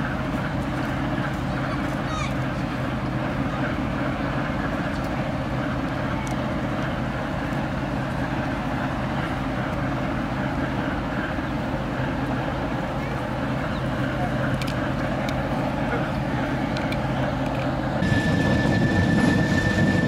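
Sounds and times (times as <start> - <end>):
diesel locomotive engine drone: 0.0 - 20.0.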